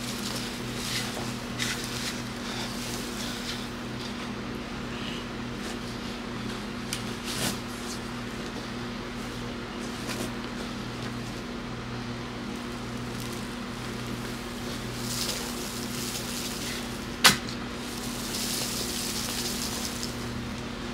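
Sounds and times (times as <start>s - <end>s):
steady low hum: 0.0s - 20.9s
soil scattering from a shovel: 12.6s - 20.4s.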